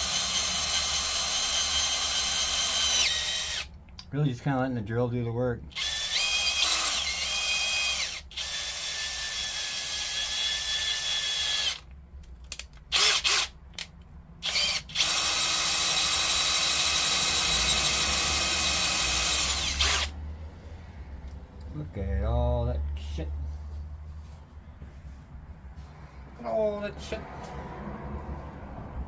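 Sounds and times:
cordless drill whining: 0:00.0 - 0:03.7, 0:05.7 - 0:11.9, 0:12.9 - 0:13.5, 0:14.4 - 0:20.2.

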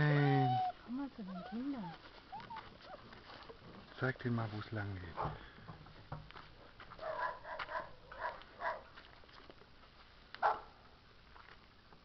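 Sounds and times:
dog barking: 0:07.0 - 0:08.9, 0:10.4 - 0:10.8.

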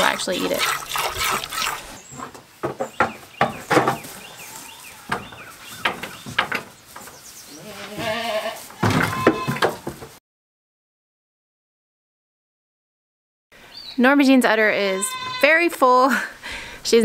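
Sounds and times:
knocks and clatters: 0:02.2 - 0:04.1, 0:05.1 - 0:07.2, 0:08.8 - 0:10.2
goat bleating: 0:07.5 - 0:09.8, 0:14.9 - 0:15.6.

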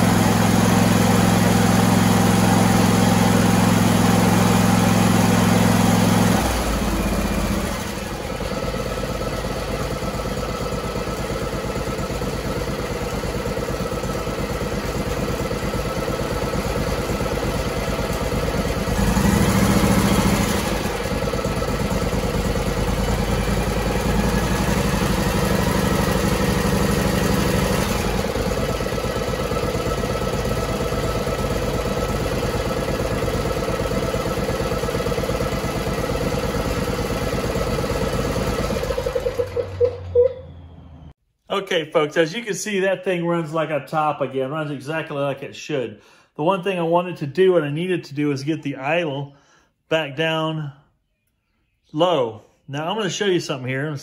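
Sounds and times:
engine running and idling: 0:00.0 - 0:41.2.

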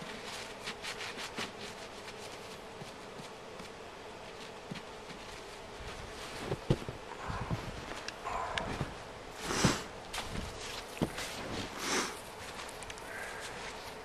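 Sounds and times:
gloved hand crunching snow: 0:00.0 - 0:14.0
steady hiss: 0:00.0 - 0:14.0.

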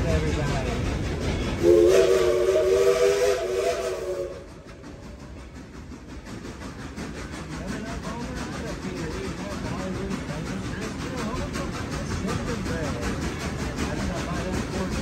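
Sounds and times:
train running noise: 0:00.0 - 0:15.0
steam locomotive whistle: 0:01.6 - 0:04.7.

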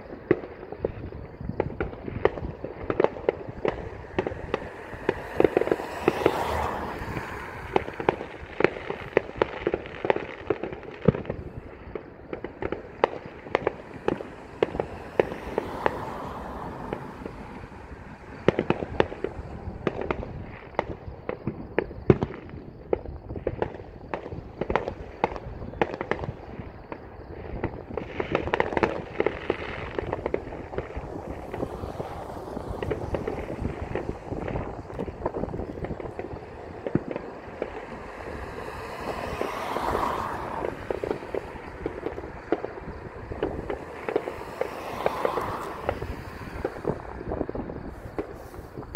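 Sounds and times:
distant fireworks popping and banging: 0:00.0 - 0:48.9.

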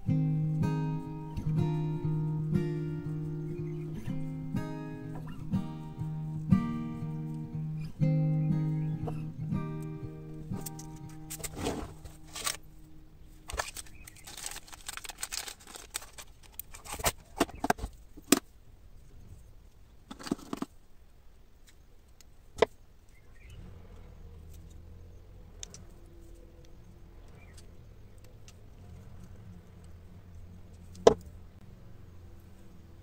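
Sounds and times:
plastic box rustling and clatter: 0:10.6 - 0:12.7, 0:13.4 - 0:18.4, 0:20.1 - 0:20.8.

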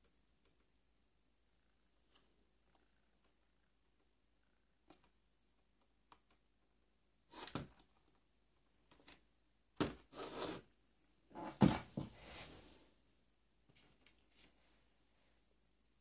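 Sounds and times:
cables rustling and scraping: 0:13.7 - 0:14.9.

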